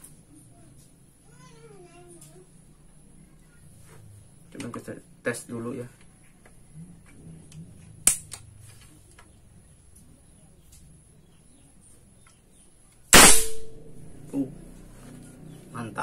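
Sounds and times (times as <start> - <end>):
air rifle shot: 13.1 - 13.9.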